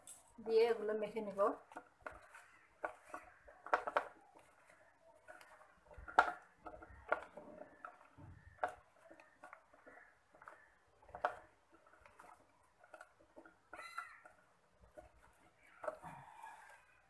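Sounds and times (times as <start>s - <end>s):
hand squishing mango slices: 0.2s - 17.0s
pieces knocking against dish: 1.6s - 16.1s.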